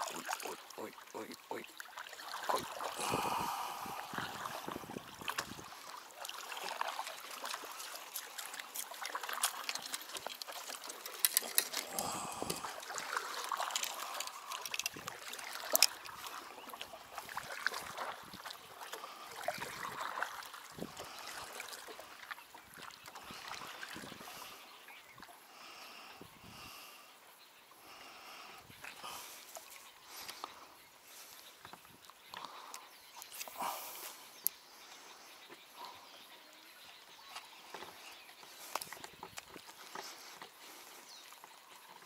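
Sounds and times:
water splashing against boat: 0:00.0 - 0:24.6.

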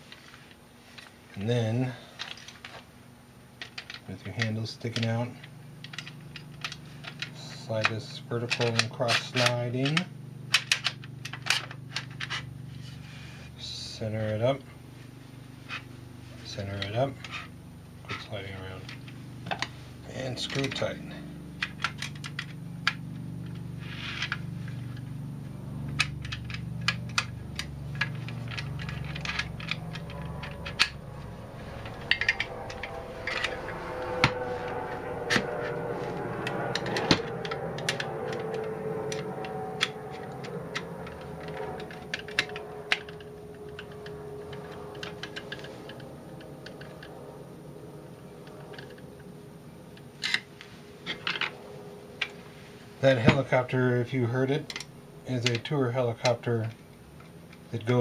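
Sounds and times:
helicopter flying over: 0:24.4 - 0:50.4
small metal parts clicking: 0:25.9 - 0:31.0, 0:36.7 - 0:47.1.

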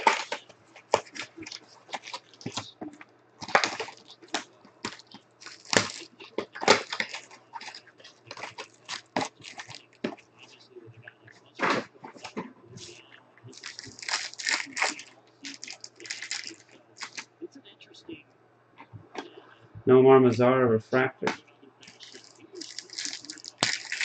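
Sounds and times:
cellophane wrap crinkling and tearing: 0:00.0 - 0:02.7, 0:03.4 - 0:10.2, 0:12.8 - 0:17.3, 0:21.8 - 0:24.0.

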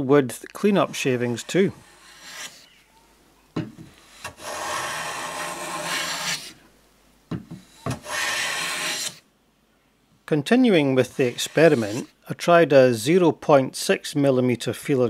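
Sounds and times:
hand plane shaving wood: 0:00.6 - 0:02.7, 0:04.0 - 0:06.6, 0:07.9 - 0:09.2, 0:11.0 - 0:12.1.

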